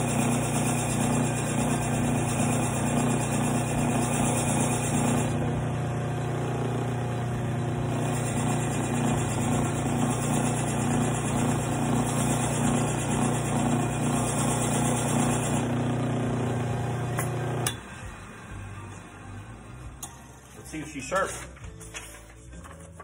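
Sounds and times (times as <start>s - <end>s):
belt sander motor running: 0.0s - 17.7s.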